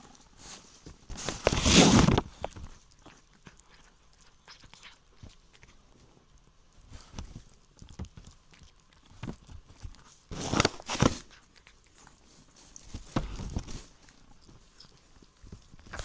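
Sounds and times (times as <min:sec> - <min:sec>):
kitten licking and eating: 0:00.0 - 0:16.0.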